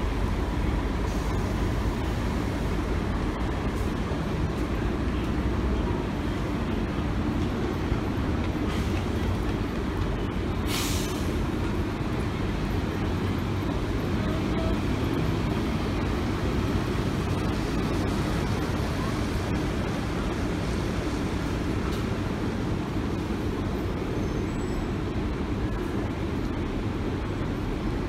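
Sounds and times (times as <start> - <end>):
bus engines rumbling: 0.0 - 28.0
air brake hiss: 10.7 - 11.4.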